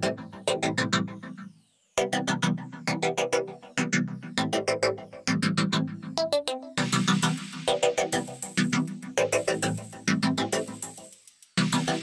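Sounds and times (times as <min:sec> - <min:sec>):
music with quick repeated notes: 0:06.4 - 0:12.0.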